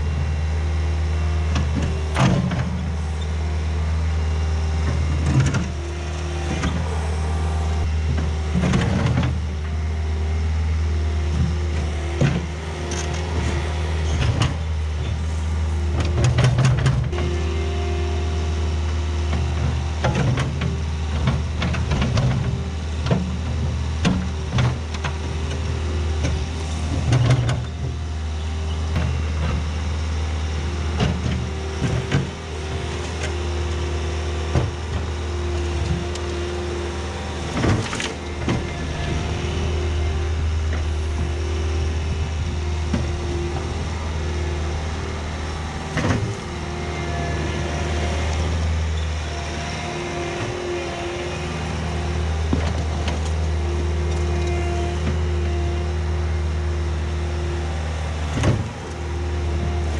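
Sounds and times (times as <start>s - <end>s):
diesel engine running: 0.0s - 59.9s
sharp knocks and clunks: 45.9s - 46.5s.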